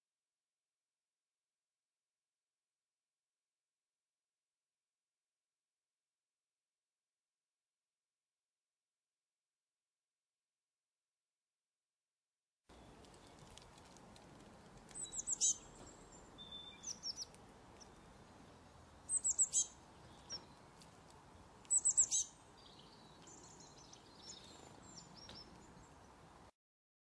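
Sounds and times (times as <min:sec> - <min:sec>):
songbirds calling: 0:12.7 - 0:26.5.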